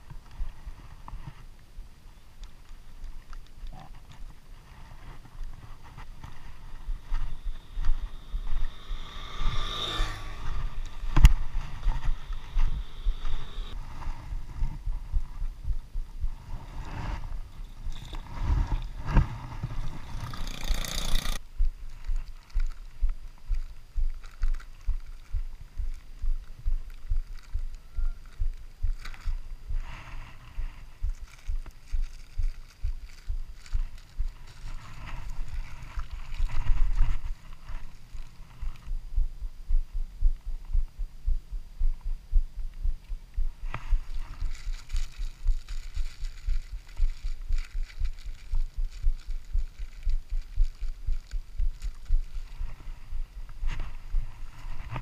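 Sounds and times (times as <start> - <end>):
microphone handling thumps: 10.4 - 20.0.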